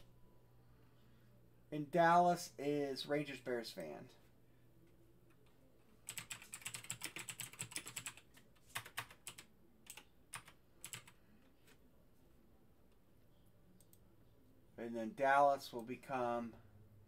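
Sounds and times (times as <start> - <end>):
typing on computer keyboard: 6.0 - 11.2.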